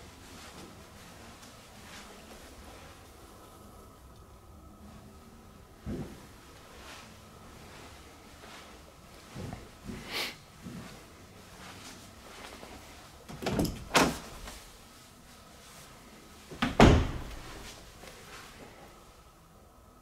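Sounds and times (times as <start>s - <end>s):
door shutting: 13.3s - 14.5s, 16.5s - 17.6s
door thuds: 16.6s - 17.4s.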